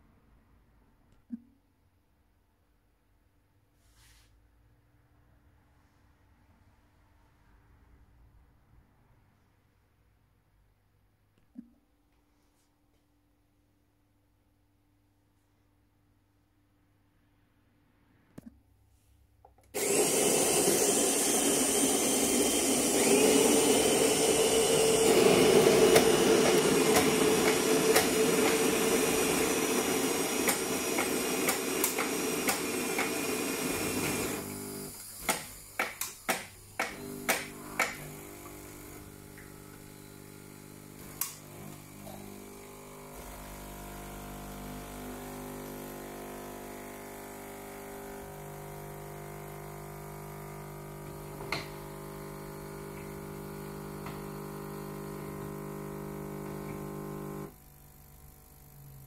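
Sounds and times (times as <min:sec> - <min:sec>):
coffee grinder grinding beans: 0:19.8 - 0:59.0
espresso pump hum: 0:19.8 - 0:59.0.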